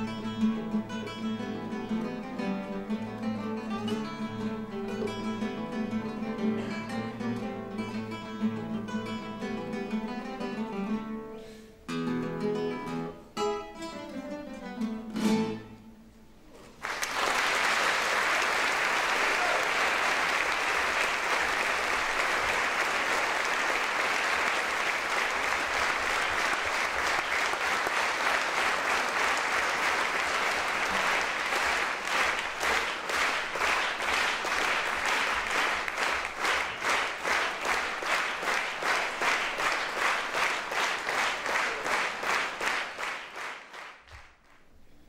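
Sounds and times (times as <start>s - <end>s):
audience applause: 16.7s - 44.6s
rhythmic clapping in unison: 16.8s - 44.7s.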